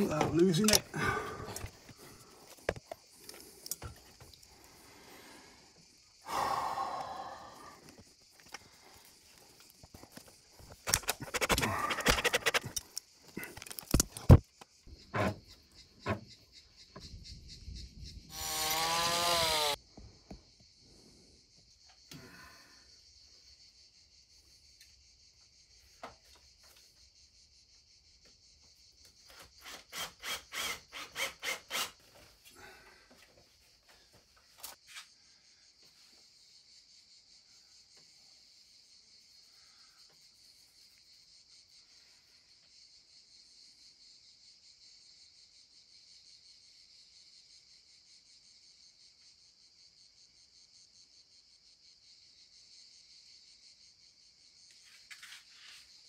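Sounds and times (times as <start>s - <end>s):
insects chirring: 0.0s - 56.0s
sharp clicks: 10.7s - 14.4s
loud strokes: 10.8s - 12.8s.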